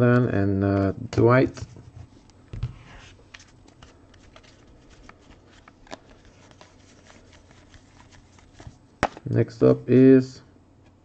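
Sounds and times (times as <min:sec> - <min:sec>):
trading cards flipped by hand: 0:02.2 - 0:09.3.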